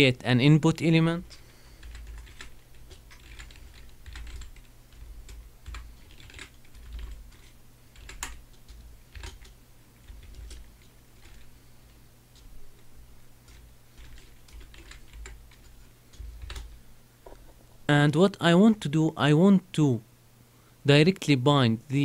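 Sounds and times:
faint low hum: 0:00.0 - 0:22.0
keyboard typing: 0:01.2 - 0:11.5, 0:13.4 - 0:16.8.

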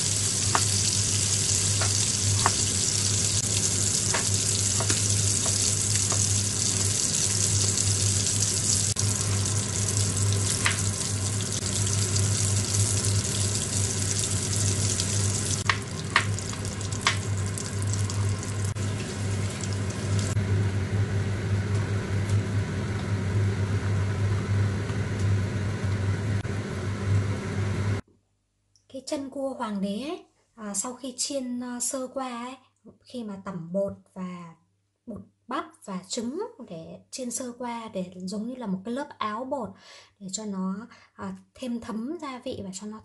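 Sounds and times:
food sizzling in hot oil: 0:00.0 - 0:20.4
knife tapping on cutting board: 0:01.8 - 0:02.7.

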